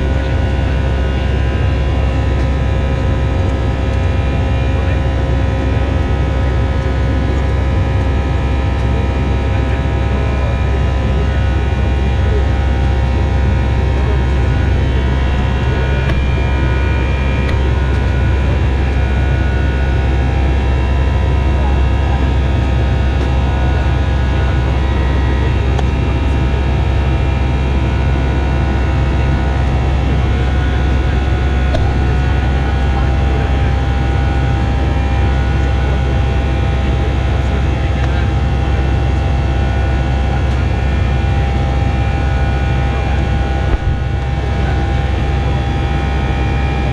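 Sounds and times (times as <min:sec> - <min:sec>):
deep rumble of engines and airflow: 0:00.0 - 0:46.9.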